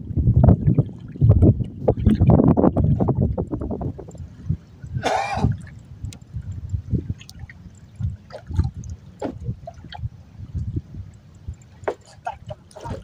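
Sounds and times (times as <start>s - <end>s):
water slapping against boat hull: 0.5s - 4.2s, 7.0s - 10.1s, 11.7s - 13.0s
faint clicks: 5.6s - 8.1s, 10.5s - 12.8s.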